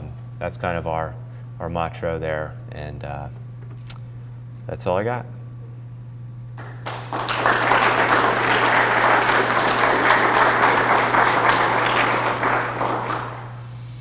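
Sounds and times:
audience applauding: 6.6 - 13.6.

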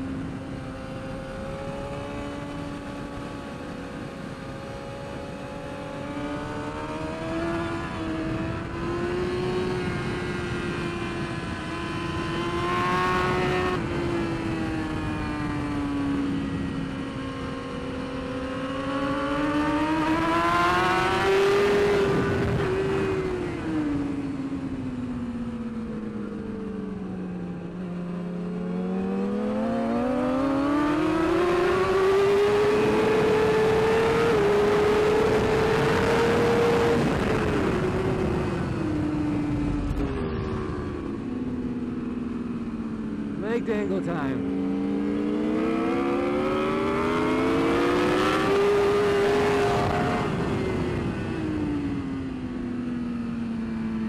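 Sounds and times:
motorcycle engine revving: 0.0 - 54.0
wind rush: 31.8 - 42.3.

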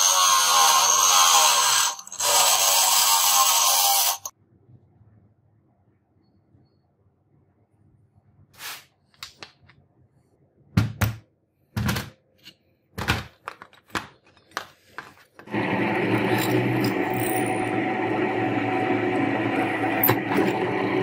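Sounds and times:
drill press drilling steel: 15.5 - 21.0.

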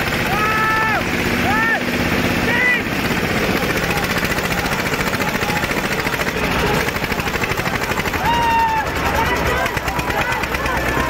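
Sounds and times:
tractor engine working under load: 0.0 - 11.0
short high shout: 8.2 - 9.0.

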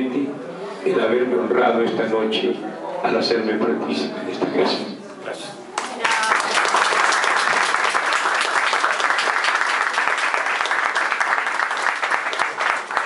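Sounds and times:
audience applauding: 5.8 - 13.0.

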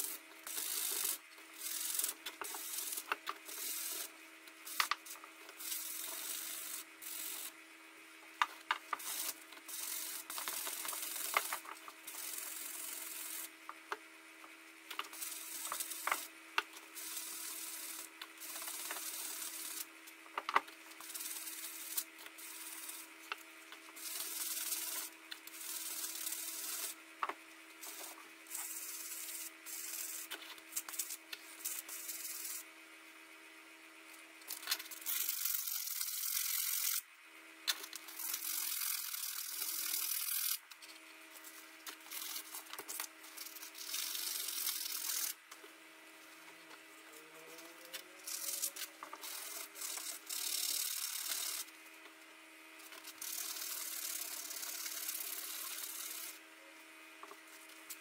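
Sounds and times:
sanding block rubbing on steel: 0.0 - 4.1, 5.6 - 7.6, 9.0 - 13.5, 16.9 - 19.9, 21.0 - 23.1, 24.0 - 27.0, 27.8 - 32.6, 53.1 - 56.4.

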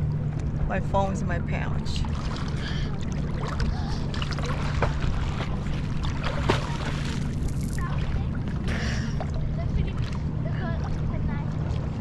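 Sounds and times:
boat engine idling: 0.0 - 12.0
small water splashes: 2.0 - 12.0.

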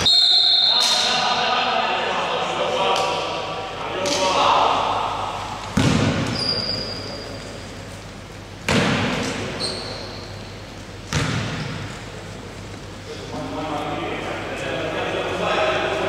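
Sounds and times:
basketball bouncing on wooden floor: 5.8 - 6.4.

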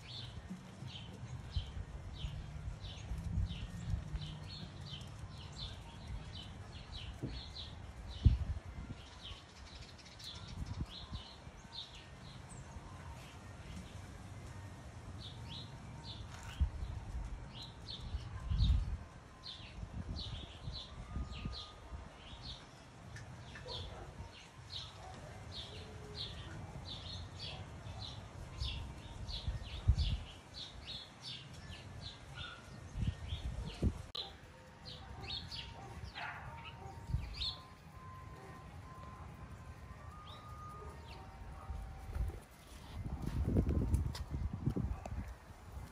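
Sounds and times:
bird chirping: 25.6 - 41.8.

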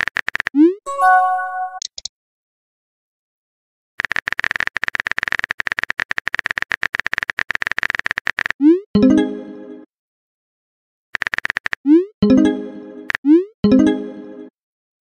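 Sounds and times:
bright chime: 0.9 - 1.8.

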